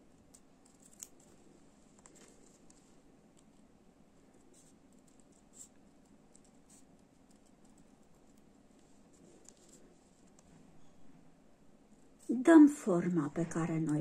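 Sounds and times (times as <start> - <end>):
scissors cutting paper: 0.3 - 1.4.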